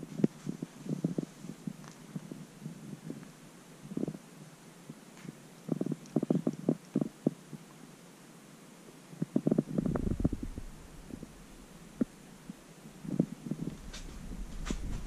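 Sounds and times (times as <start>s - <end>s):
cat purring: 0.0s - 4.3s, 5.7s - 7.5s, 9.2s - 15.0s.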